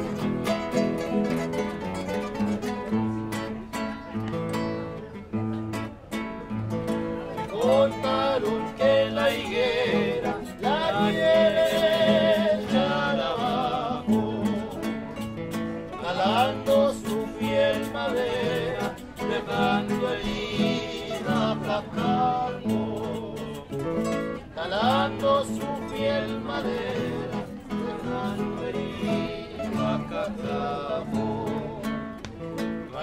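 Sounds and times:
acoustic guitars playing: 0:00.0 - 0:33.0
man singing: 0:07.4 - 0:32.2.

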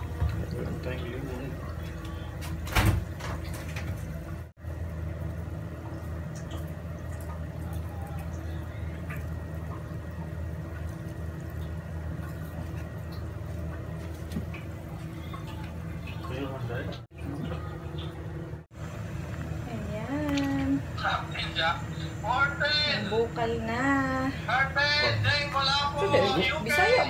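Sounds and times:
gas stove hum: 0:00.0 - 0:27.0.

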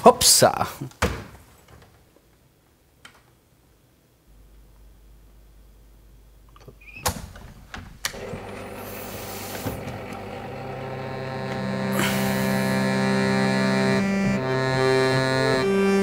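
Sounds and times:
harmonium chord: 0:08.2 - 0:16.0.

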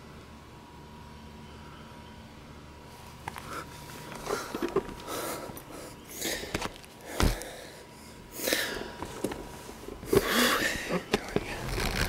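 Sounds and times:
bicycle rolling on pavement: 0:11.4 - 0:12.0.

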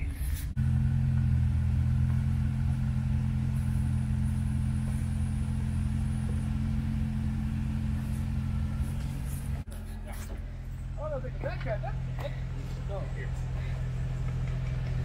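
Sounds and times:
truck engine running low revs: 0:00.5 - 0:15.0.

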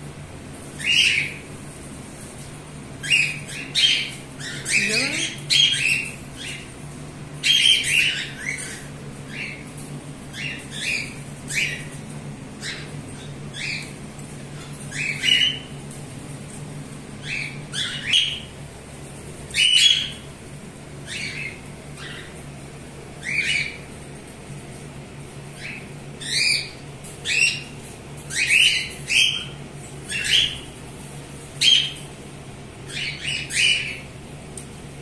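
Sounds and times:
cockatiels chirping and squawking: 0:00.8 - 0:01.5, 0:03.0 - 0:06.7, 0:07.4 - 0:12.0, 0:12.6 - 0:15.7, 0:17.2 - 0:18.5, 0:19.5 - 0:20.3, 0:21.1 - 0:22.4, 0:23.2 - 0:23.9, 0:25.6 - 0:30.8, 0:31.6 - 0:32.1, 0:32.9 - 0:34.1.

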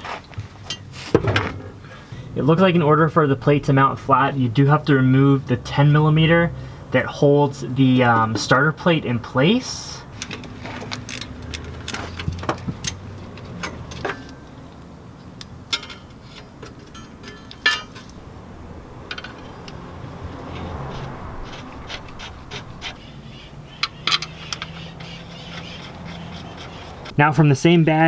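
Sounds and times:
light metallic clicks and clinks: 0:16.8 - 0:18.2.

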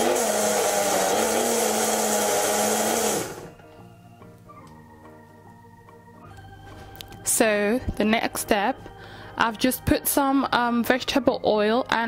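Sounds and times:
blender motor whirring: 0:00.0 - 0:03.6.

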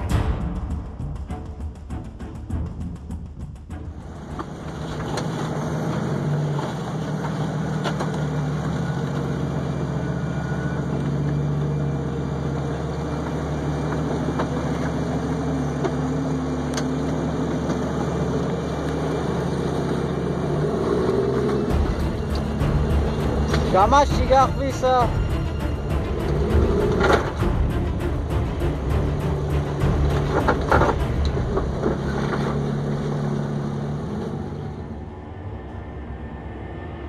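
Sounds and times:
off-road engine running: 0:00.0 - 0:37.0.

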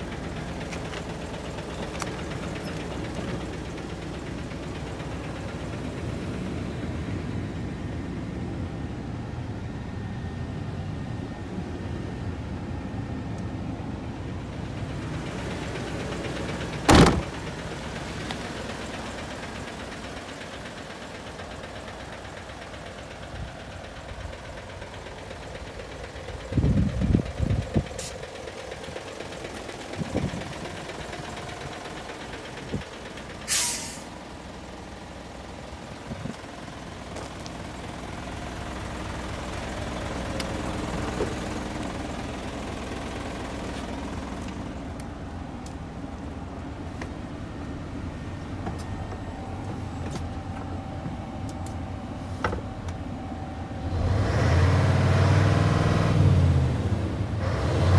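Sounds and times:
diesel truck engine idling: 0:00.0 - 0:57.9
loud knock: 0:16.9 - 0:17.3
low thumps: 0:16.9 - 0:17.4
air hiss: 0:33.5 - 0:34.1.

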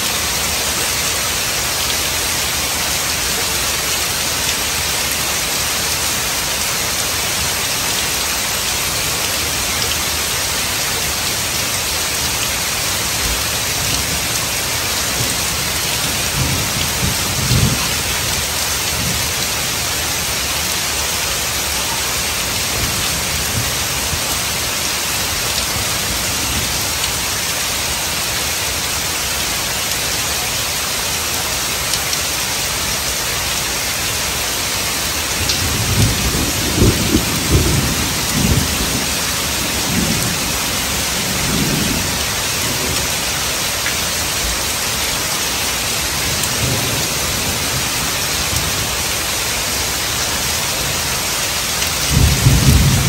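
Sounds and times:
heavy rain falling: 0:00.0 - 0:53.0
low rumble of thunder: 0:14.4 - 0:19.2, 0:35.5 - 0:43.0, 0:52.1 - 0:53.0.

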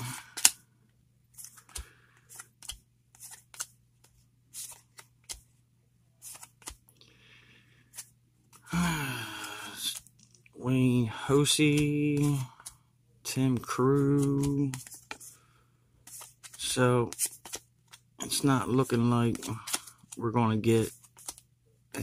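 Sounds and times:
faint steady hum: 0:00.0 - 0:22.0
cards flipped with papery snaps: 0:00.2 - 0:00.6, 0:01.4 - 0:05.4, 0:06.2 - 0:06.8, 0:11.6 - 0:12.8, 0:13.5 - 0:15.3, 0:16.0 - 0:18.0, 0:20.9 - 0:21.4.

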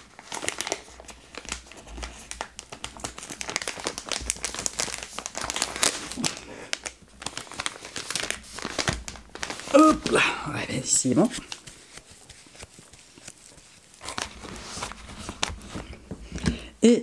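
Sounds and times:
plastic packet crinkling: 0:00.0 - 0:16.6.

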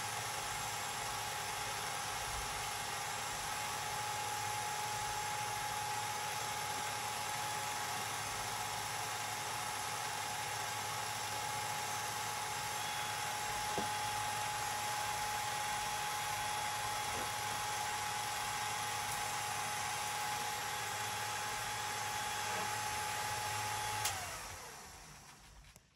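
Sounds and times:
film projector whirring: 0:00.0 - 0:25.5.

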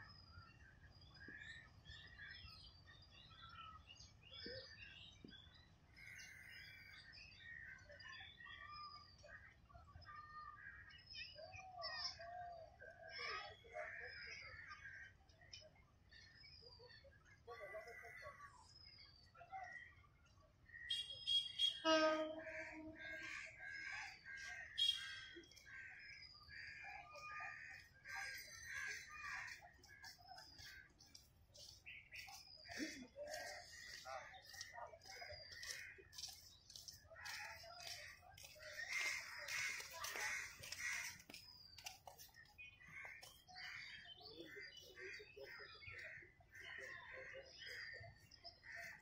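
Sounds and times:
birds chirping: 0:13.4 - 0:49.0.

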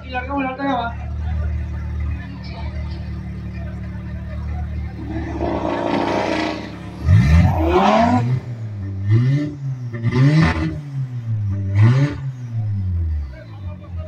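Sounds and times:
car engine revving: 0:04.7 - 0:13.0.

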